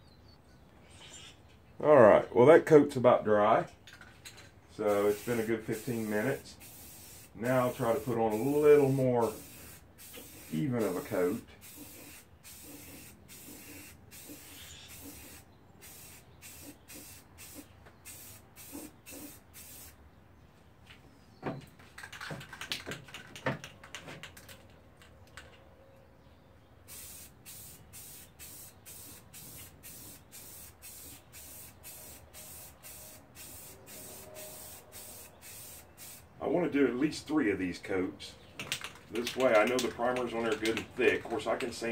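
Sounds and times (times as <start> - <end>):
aerosol spray can hissing: 5.0 - 20.0, 26.9 - 36.3
spray can rattling clicks: 21.9 - 25.5, 38.6 - 41.8.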